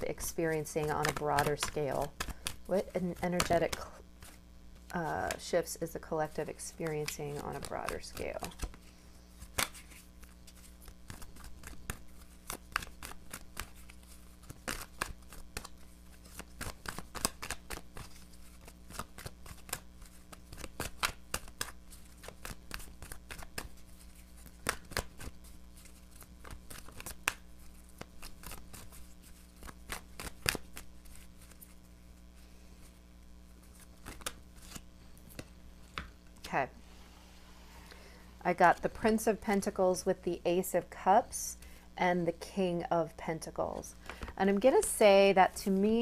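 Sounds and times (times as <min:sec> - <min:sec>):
cards being shuffled: 0:00.1 - 0:31.9, 0:32.8 - 0:36.6.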